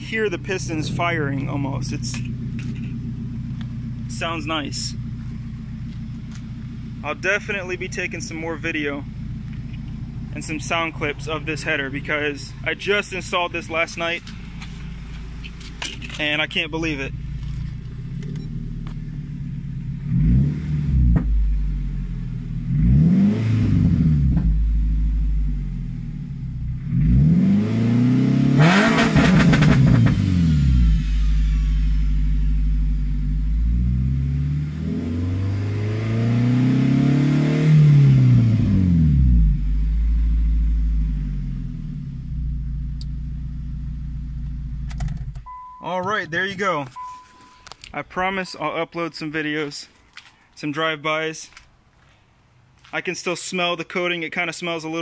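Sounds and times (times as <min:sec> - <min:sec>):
car engine idling and revving: 0:00.0 - 0:48.5.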